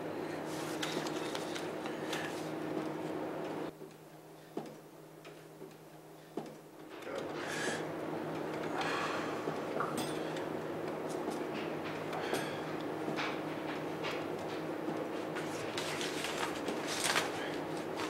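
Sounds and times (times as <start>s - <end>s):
steady low hum: 0.0s - 18.0s
playing cards being handled: 0.5s - 2.5s, 15.4s - 18.0s.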